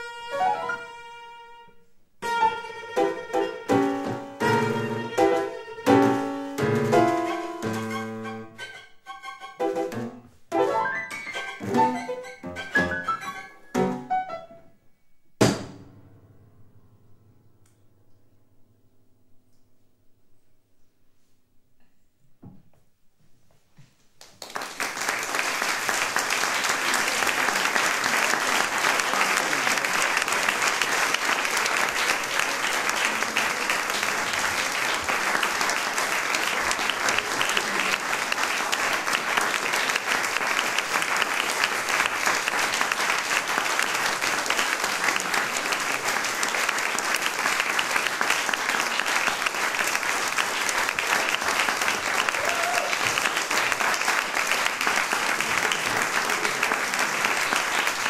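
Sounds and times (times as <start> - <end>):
audience applause: 10.7 - 13.6, 24.2 - 58.0.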